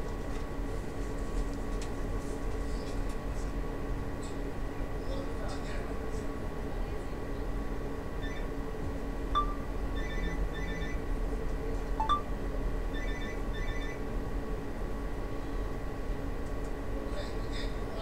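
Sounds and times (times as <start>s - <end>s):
electrical hum: 0.0s - 18.0s
electronic tune of short beeps: 9.4s - 11.0s, 12.0s - 12.3s.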